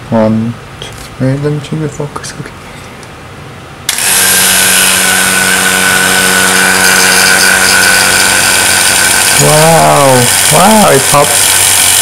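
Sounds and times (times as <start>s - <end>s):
vacuum pump humming and hissing: 3.9s - 12.0s.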